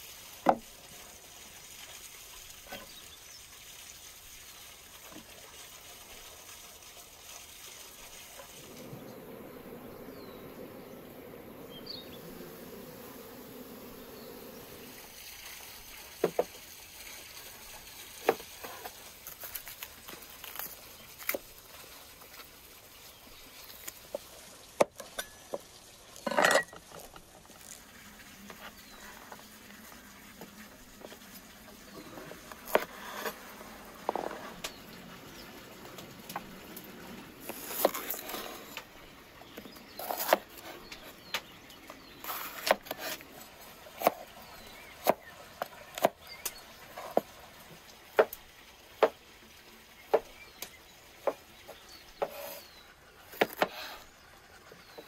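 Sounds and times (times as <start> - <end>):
quiet outdoor background: 0.0 - 55.0
insect buzzing: 8.6 - 15.8
knife scrape: 32.6 - 33.4, 42.2 - 43.2, 52.2 - 52.7.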